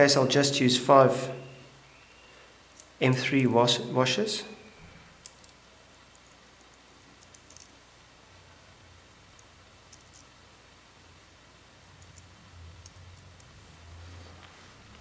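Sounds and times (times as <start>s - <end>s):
faint steady low hum: 0.0s - 15.0s
metal washers clicking: 5.2s - 7.8s, 9.1s - 10.4s.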